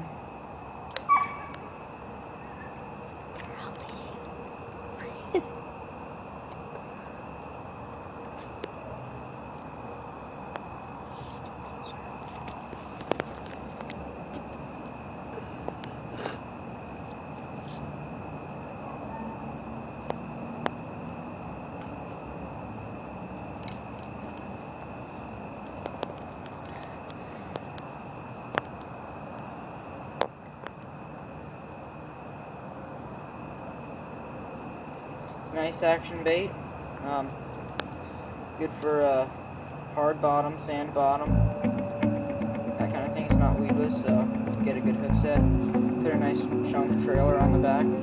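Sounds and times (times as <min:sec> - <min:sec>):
crickets trilling: 0:00.0 - 0:48.0
sharp clicks: 0:00.9 - 0:01.1.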